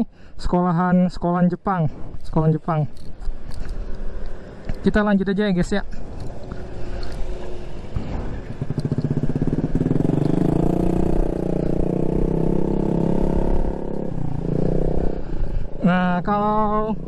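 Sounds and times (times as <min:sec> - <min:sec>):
motor scooter engine pulling away: 0:07.6 - 0:15.2.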